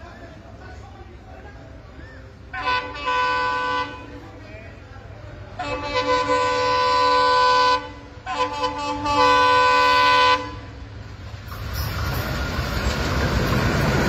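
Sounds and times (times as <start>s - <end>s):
train rumble: 0.0s - 14.0s
locomotive air horn blast: 2.5s - 4.2s, 5.6s - 10.9s.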